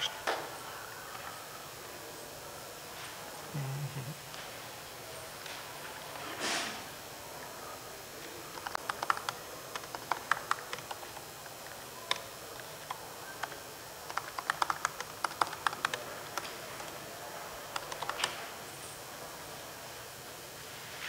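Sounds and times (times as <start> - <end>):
typing on computer keyboard: 8.5 - 17.0, 17.7 - 18.4.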